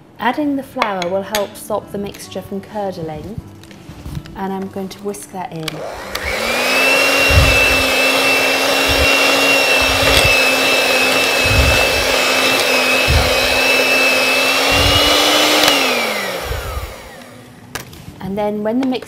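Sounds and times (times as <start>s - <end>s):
electric hand whisk whining: 5.7s - 17.5s.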